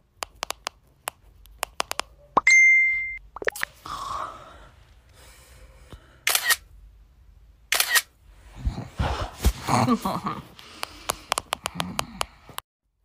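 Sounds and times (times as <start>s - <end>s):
notification chime: 2.4s - 3.2s
camera shutter clicks: 6.3s - 6.6s, 7.7s - 8.1s.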